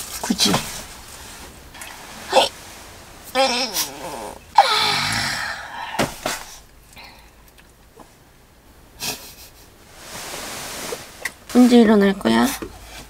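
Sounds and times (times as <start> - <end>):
knocks of movement in bedding: 0.0 - 6.7
person yawning: 3.4 - 6.2.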